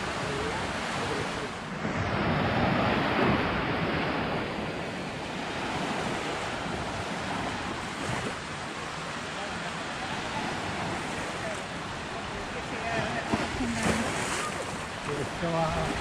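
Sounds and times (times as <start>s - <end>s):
wind on microphone: 0.0s - 8.4s
waves washing onto sand: 0.0s - 16.0s.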